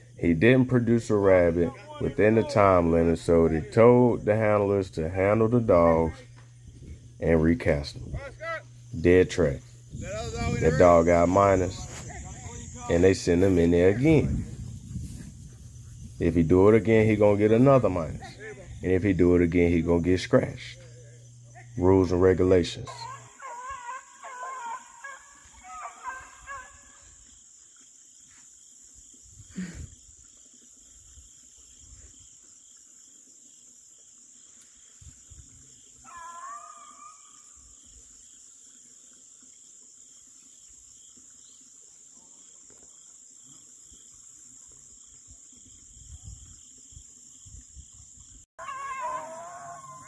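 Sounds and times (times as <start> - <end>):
beagles baying: 22.9 - 27.1, 36.0 - 37.4, 48.6 - 50.0.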